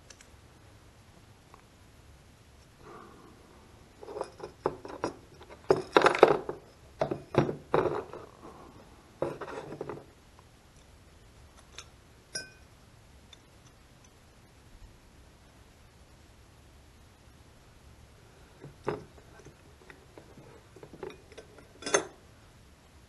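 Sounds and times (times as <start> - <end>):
small metal parts clinking: 4.0 - 8.3, 20.2 - 22.2.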